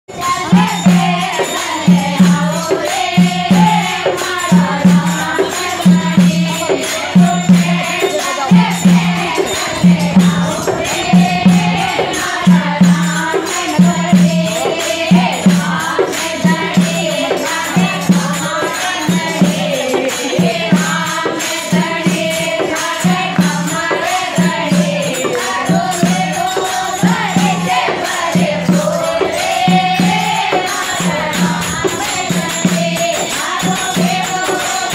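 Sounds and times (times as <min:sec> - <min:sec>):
hand bells jingling: 0:00.1 - 0:34.9
women singing in unison: 0:00.1 - 0:34.9
hand drum beating: 0:00.2 - 0:34.9.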